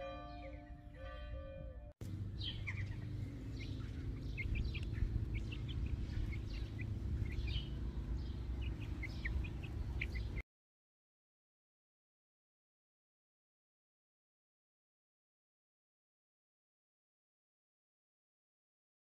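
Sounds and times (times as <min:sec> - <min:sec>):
steady low rumble: 0:01.2 - 0:10.4
chicks peeping: 0:02.4 - 0:10.4.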